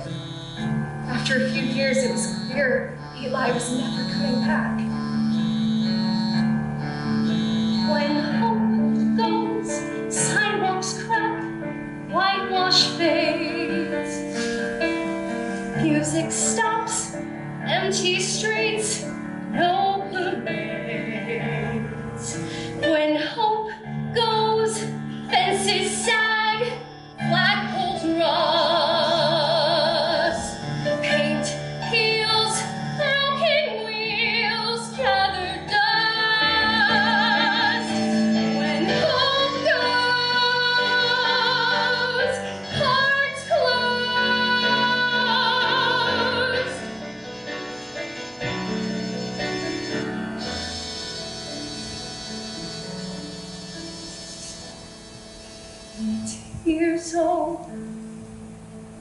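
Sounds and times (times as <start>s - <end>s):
instrumental accompaniment: 0.0s - 59.0s
woman singing a ballad: 1.1s - 4.9s, 7.8s - 14.4s, 15.8s - 47.0s, 56.0s - 58.0s.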